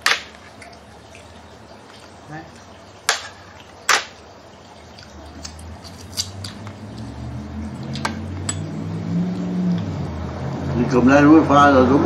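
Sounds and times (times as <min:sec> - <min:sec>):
low steady hum: 0:00.0 - 0:10.8
chopsticks clicking on bowls: 0:04.9 - 0:09.9.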